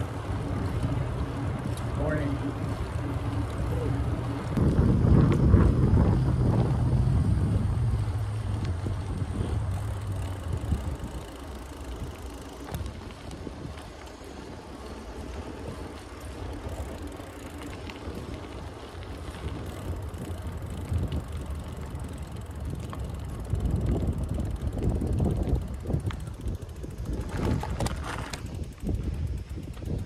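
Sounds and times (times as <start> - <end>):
bike tyre and road noise: 0.0 - 30.0
wind rumble on microphone: 0.0 - 30.0
small ticks and rattles: 7.9 - 30.0.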